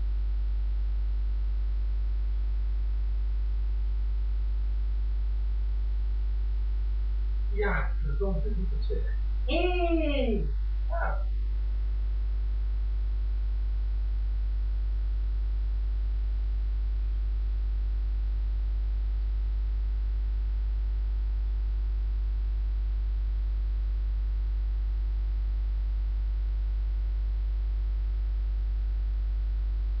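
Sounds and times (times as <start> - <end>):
electrical mains hum: 0.0 - 30.0
static hiss: 0.0 - 30.0.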